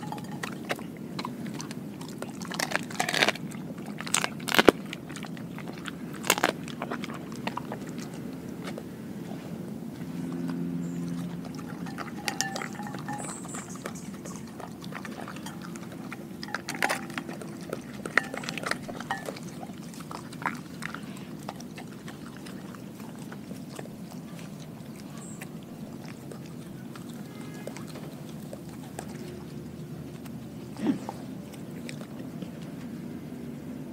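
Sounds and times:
dog licking and chewing food: 0:00.0 - 0:33.9
clicks on glass bowl: 0:11.8 - 0:14.4.

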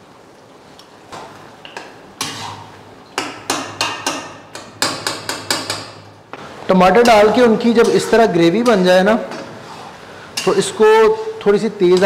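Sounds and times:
metal utensils scraping a pan: 0:02.2 - 0:02.7, 0:07.0 - 0:12.0.

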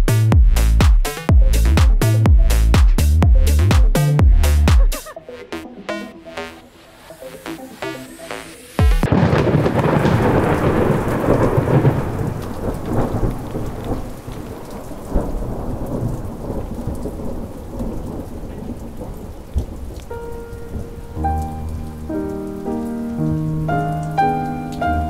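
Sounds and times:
dance music: 0:00.0 - 0:09.1
heavy rain: 0:04.4 - 0:25.0
thunder clap rumbling: 0:08.8 - 0:22.6
soft piano notes: 0:20.0 - 0:25.0.

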